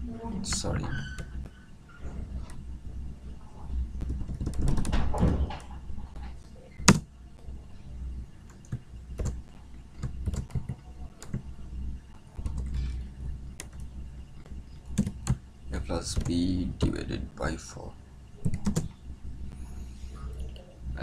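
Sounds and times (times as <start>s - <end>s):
low steady hum: 0.0s - 21.0s
keyboard keystrokes: 4.0s - 5.7s, 6.8s - 7.1s, 8.5s - 9.4s, 10.0s - 11.4s, 14.9s - 15.4s, 18.4s - 18.9s.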